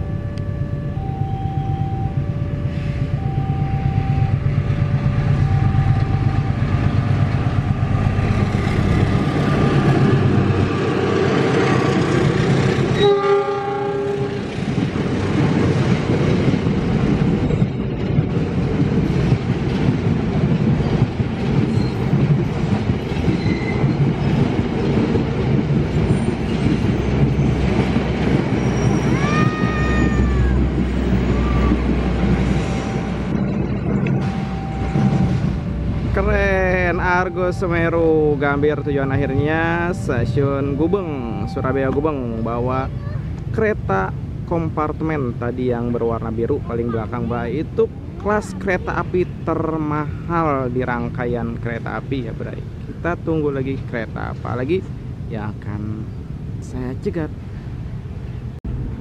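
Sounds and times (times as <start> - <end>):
rising and falling tone: 0.0 - 11.0
train engine running: 0.0 - 13.0, 13.8 - 44.5
train horn blast: 13.0 - 14.5
wheels clattering over rails: 14.3 - 35.8.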